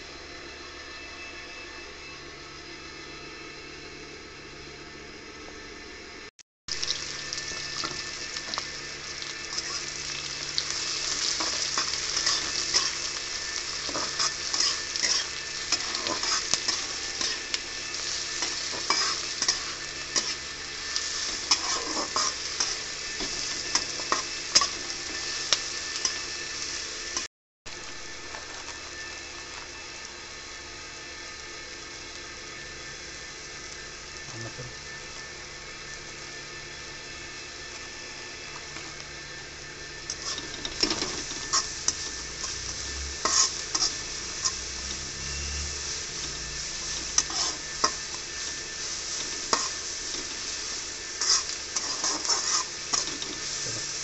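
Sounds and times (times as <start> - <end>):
onions sizzling in hot oil: 6.7 - 54.0
metal spatula scraping pan: 40.1 - 48.6, 51.2 - 53.5.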